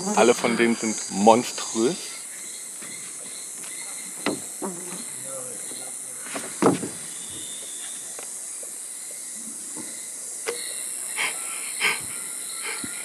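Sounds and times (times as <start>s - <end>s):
high-pitched hiss: 0.0s - 13.0s
short knocks: 4.2s - 4.5s, 6.4s - 7.0s.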